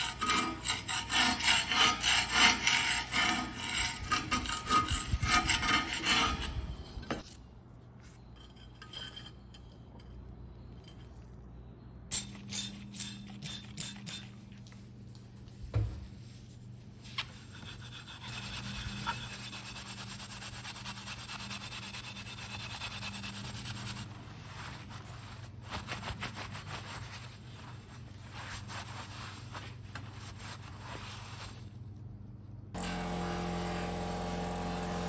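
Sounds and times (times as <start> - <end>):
scrubbing metal plate by hand: 17.1 - 31.5.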